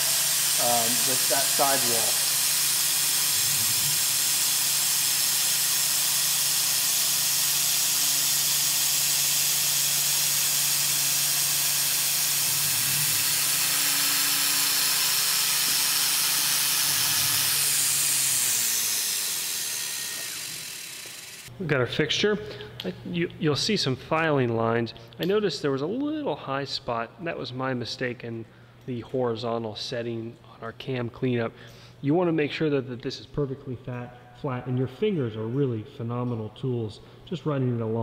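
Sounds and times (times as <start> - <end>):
coolant mist hissing: 0.0 - 2.6
mill spindle humming: 0.0 - 21.5.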